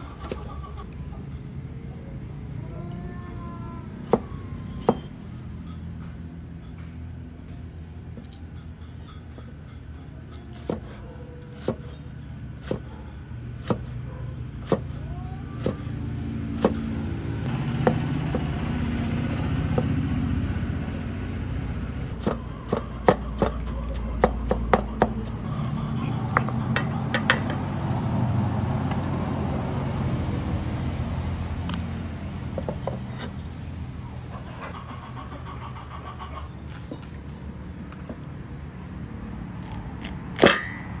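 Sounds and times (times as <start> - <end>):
cleaver chopping potato on board: 10.6 - 11.9, 13.6 - 13.9, 14.6 - 14.9, 22.2 - 25.4.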